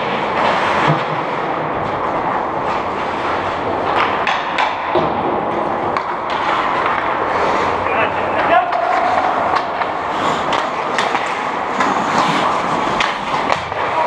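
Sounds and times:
steady noisy rumble: 0:00.0 - 0:14.0
sticks and pucks knocking: 0:00.0 - 0:14.0.

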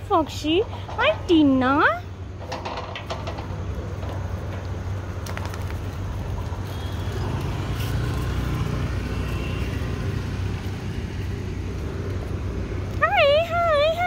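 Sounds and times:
street traffic rumble: 0:00.0 - 0:14.0
vehicle passing: 0:03.7 - 0:14.0.

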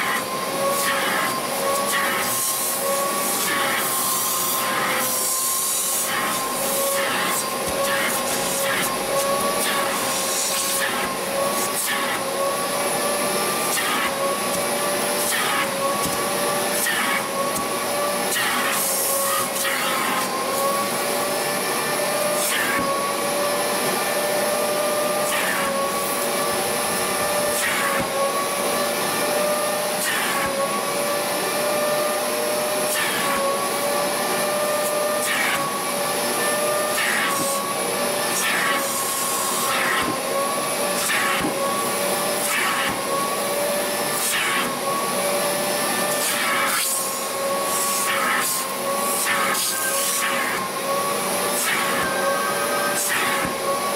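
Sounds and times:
wet vacuum whining: 0:00.0 - 0:53.9.

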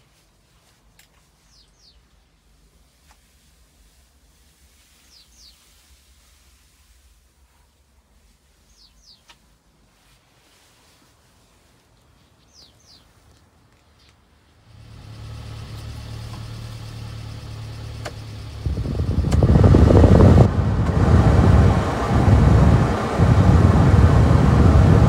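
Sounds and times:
rush of air from vents: 0:02.4 - 0:12.0, 0:14.5 - 0:25.0
heater blower fan humming: 0:14.6 - 0:25.0
fan-speed lever clicks: 0:19.2 - 0:19.6.

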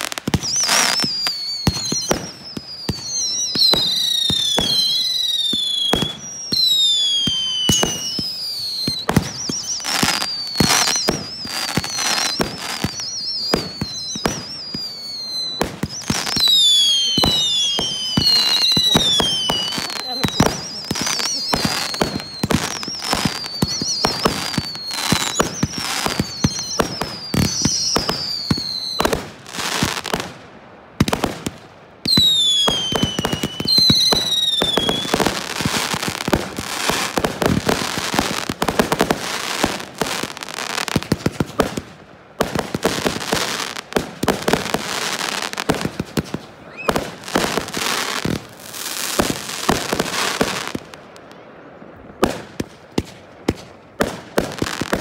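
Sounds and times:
falling firework whistles: 0:00.0 - 0:30.3, 0:32.0 - 0:41.8, 0:42.4 - 0:50.9
firework booms and crackling: 0:00.0 - 0:55.0.

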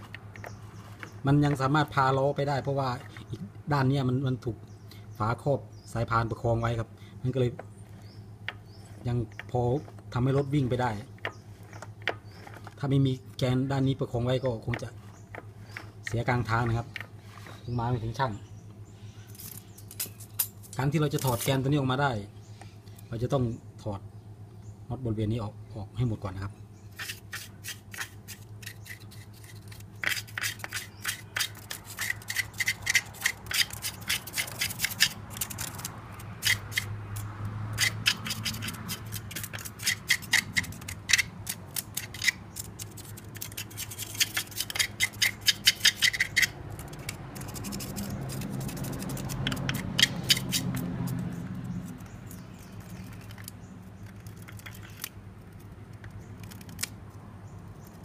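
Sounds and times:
ratchet wrench clicking: 0:29.7 - 0:53.5.

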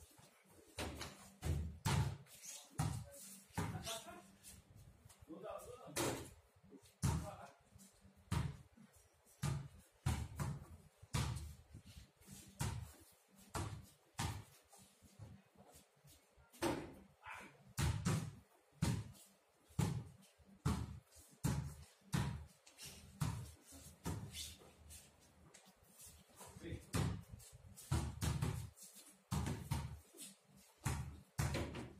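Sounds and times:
basketball bouncing on pavement: 0:26.9 - 0:30.0, 0:30.8 - 0:31.9.

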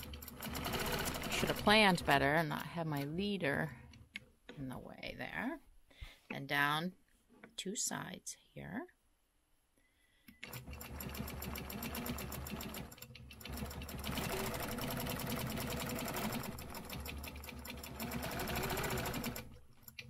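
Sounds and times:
quilting machine stitching: 0:00.0 - 0:02.3, 0:10.4 - 0:20.0.

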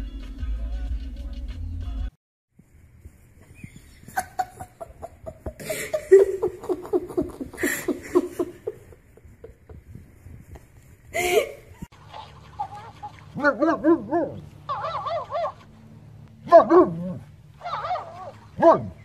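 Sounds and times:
person laughing hard: 0:04.0 - 0:10.0, 0:11.1 - 0:11.9.

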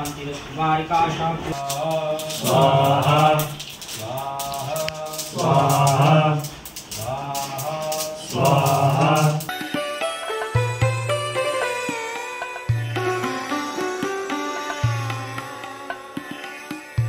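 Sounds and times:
man chanting: 0:00.0 - 0:09.5
sitar music: 0:09.4 - 0:17.0.

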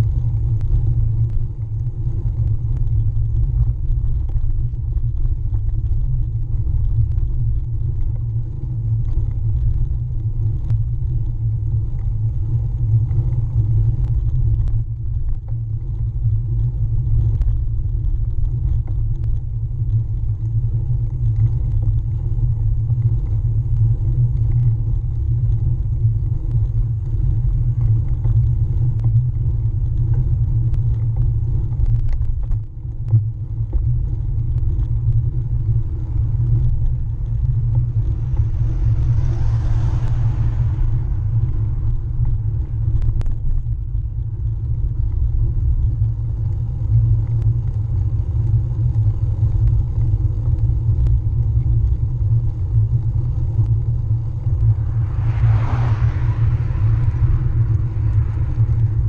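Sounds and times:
bike tyre rolling on tarmac: 0:00.0 - 0:59.0.

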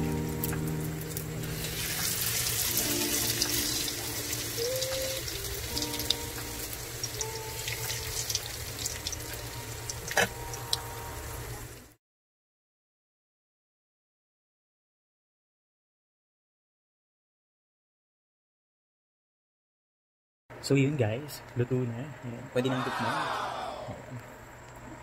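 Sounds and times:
soft background music: 0:00.0 - 0:11.7
food sizzling in hot oil: 0:00.0 - 0:12.0
oil popping and crackling: 0:00.1 - 0:11.7.

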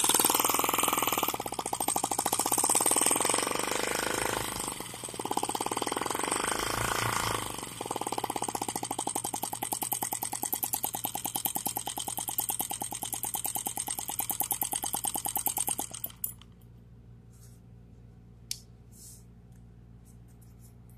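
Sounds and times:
model engine popping: 0:00.0 - 0:16.5.

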